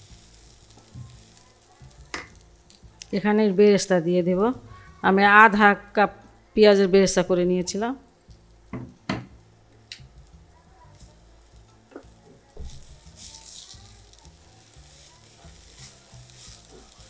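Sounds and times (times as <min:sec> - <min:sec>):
faint sizzle: 0:00.0 - 0:17.0
spatula knocking on pan: 0:08.7 - 0:09.4
spatula scraping rice in pan: 0:12.8 - 0:17.0.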